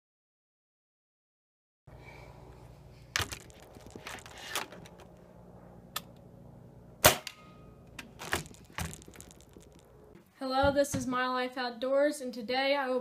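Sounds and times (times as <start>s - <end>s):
air rifle shot crack: 7.0s - 7.6s.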